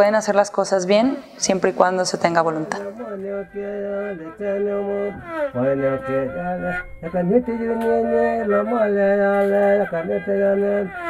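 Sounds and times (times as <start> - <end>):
fiddle melody: 2.4 - 11.0.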